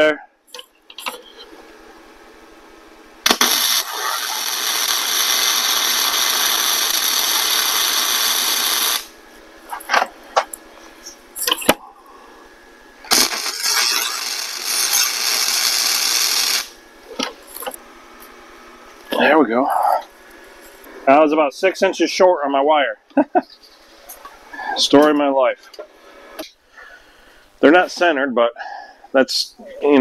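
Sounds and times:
welder arc crackling: 3.2 - 11.8, 13.0 - 17.8.

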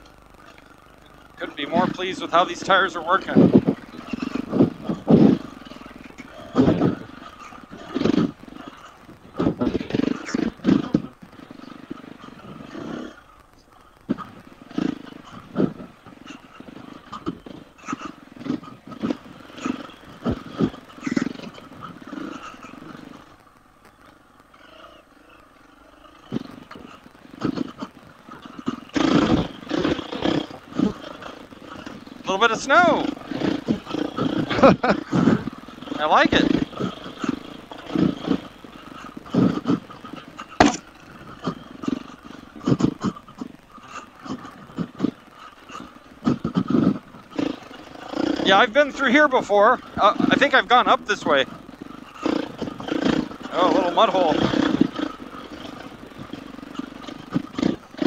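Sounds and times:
motorbike engine throttle bursts: 27.3 - 58.0.

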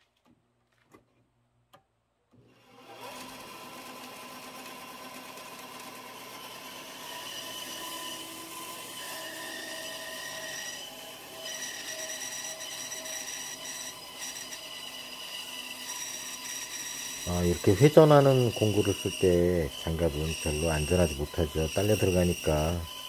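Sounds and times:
bandsaw humming: 2.6 - 23.0
saw cutting wood hiss: 6.8 - 23.0.

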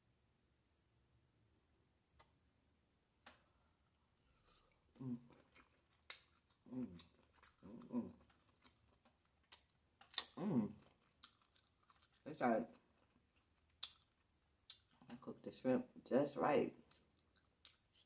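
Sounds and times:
person humming mm: 5.0 - 5.4, 6.7 - 7.0, 10.4 - 10.8
wet mouth clicks and lip smacks: 5.4 - 10.4, 13.4 - 15.1, 16.9 - 18.0.

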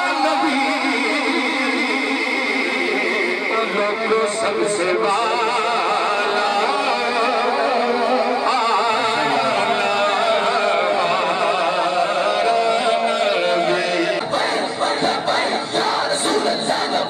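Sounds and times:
man singing into a microphone: 0.0 - 14.3.

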